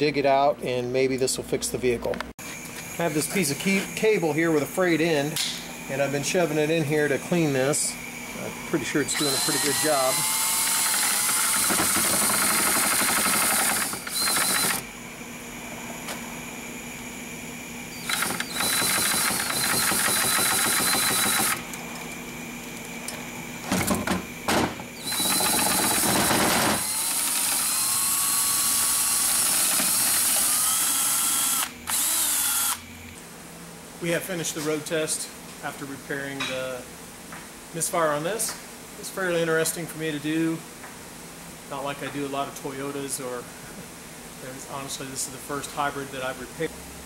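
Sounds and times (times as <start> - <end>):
cordless drill whining: 9.0 - 14.9, 17.9 - 21.7, 25.0 - 32.9.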